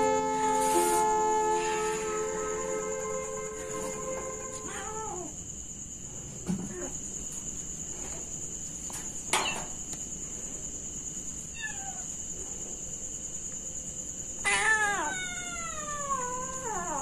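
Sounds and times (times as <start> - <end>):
steady high-pitched tone: 0.0 - 4.7
kitten meowing: 4.6 - 5.3, 11.6 - 12.1, 14.4 - 17.0.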